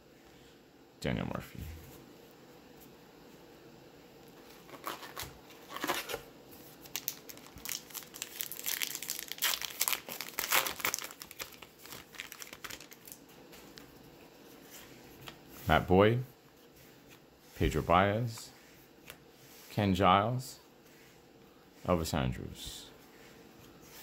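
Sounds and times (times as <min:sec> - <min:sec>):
plastic wrapper crinkling: 0:04.5 - 0:06.2, 0:06.8 - 0:13.9.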